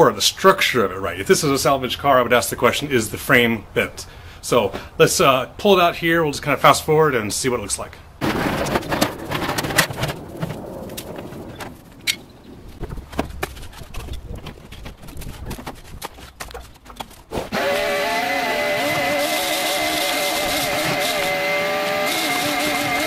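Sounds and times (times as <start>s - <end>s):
metal clanks and scraping: 8.2s - 17.5s
shop vacuum running: 17.5s - 23.0s.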